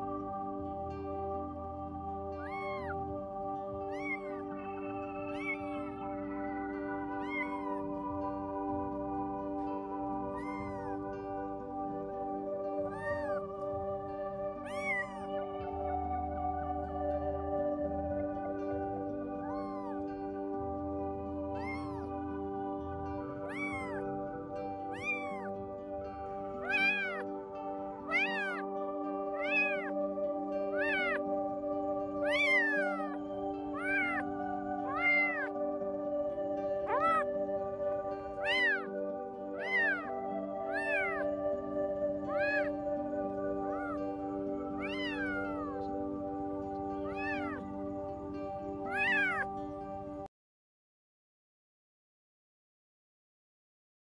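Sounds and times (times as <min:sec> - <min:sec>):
background music: 0:00.0 - 0:50.3
kitten meowing: 0:02.2 - 0:03.2, 0:03.8 - 0:08.2, 0:10.2 - 0:11.1, 0:12.8 - 0:13.6, 0:14.6 - 0:15.4, 0:19.3 - 0:20.0, 0:21.5 - 0:22.2, 0:23.4 - 0:24.1, 0:24.8 - 0:25.6, 0:26.6 - 0:27.3, 0:28.0 - 0:31.3, 0:32.1 - 0:35.6, 0:36.8 - 0:37.3, 0:38.3 - 0:41.3, 0:42.0 - 0:47.7, 0:48.8 - 0:49.5.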